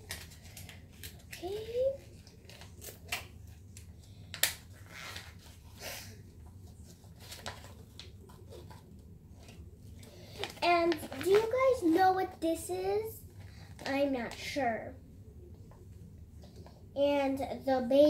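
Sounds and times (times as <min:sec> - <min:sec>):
paper crinkling and rustling: 0:00.0 - 0:05.8, 0:06.5 - 0:12.1
faint low hum: 0:00.0 - 0:18.0.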